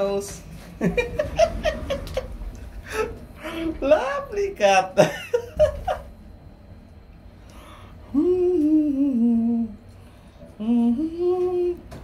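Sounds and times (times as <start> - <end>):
person humming: 8.0 - 9.9, 10.6 - 12.0.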